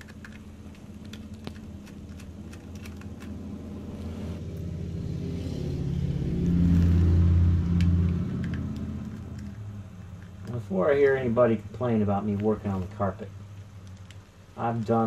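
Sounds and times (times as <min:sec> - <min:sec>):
vehicle passing by: 0:01.8 - 0:12.1.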